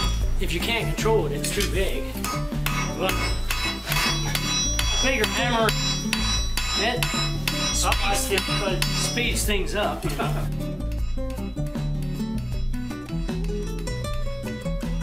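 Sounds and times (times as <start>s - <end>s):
anvil ringing: 0.0s - 0.5s, 2.2s - 9.7s
background music: 0.0s - 15.0s
hammer striking blade on anvil: 1.6s - 9.5s.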